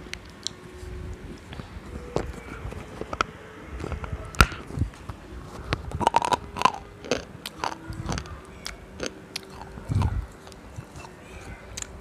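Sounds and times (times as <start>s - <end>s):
crunchy chewing: 0.2s - 12.0s
crunching bites: 5.8s - 11.1s.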